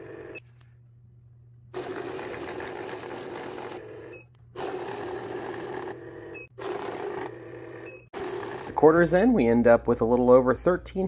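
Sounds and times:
bill counter whirring: 0:00.0 - 0:00.4, 0:01.8 - 0:09.1.

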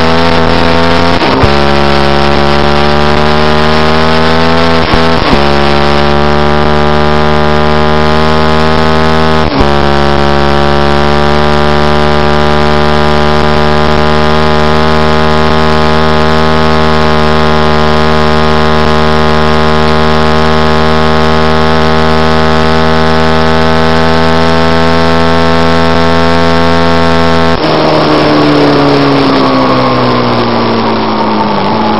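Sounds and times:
motorcycle engine at high revs: 0:00.0 - 0:31.9.

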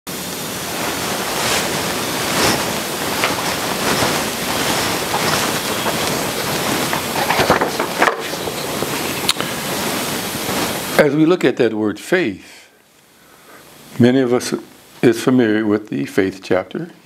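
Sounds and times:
recording hiss: 0:00.1 - 0:17.0
faint footsteps: 0:00.7 - 0:11.0
paper rustling: 0:00.9 - 0:10.9.

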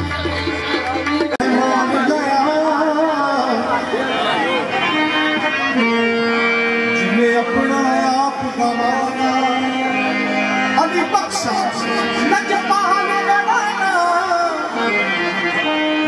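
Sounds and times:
harmonium drone: 0:00.0 - 0:16.0
person singing ornamented phrases: 0:01.4 - 0:04.0.

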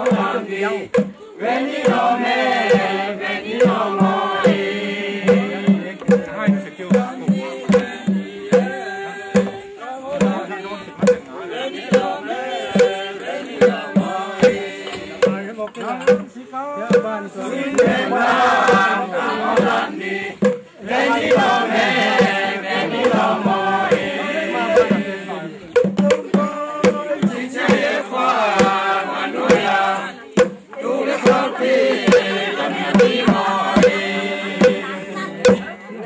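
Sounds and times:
hand drum beating: 0:00.0 - 0:29.7, 0:30.3 - 0:35.8
group singing together: 0:00.0 - 0:36.0.

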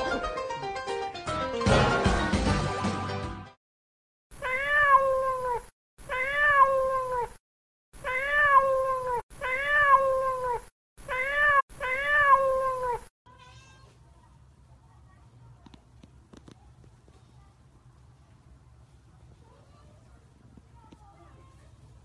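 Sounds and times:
kitten meowing: 0:04.4 - 0:07.4, 0:08.0 - 0:13.9.

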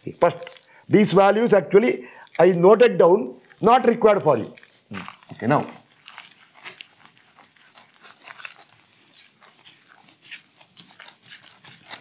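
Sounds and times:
eraser scrubbing whiteboard: 0:03.6 - 0:12.0.

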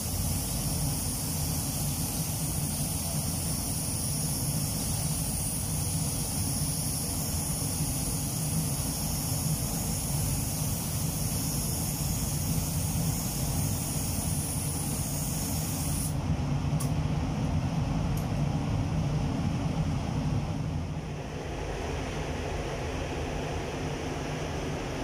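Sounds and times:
paint spray gun hissing: 0:00.0 - 0:16.2
extraction fans rumbling: 0:00.0 - 0:25.0.

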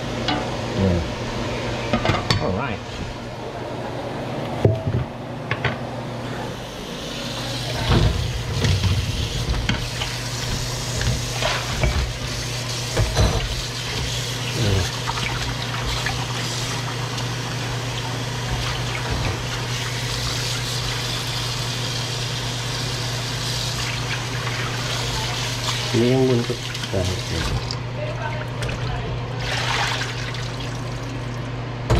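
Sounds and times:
faucet running into a sink: 0:07.3 - 0:27.8.

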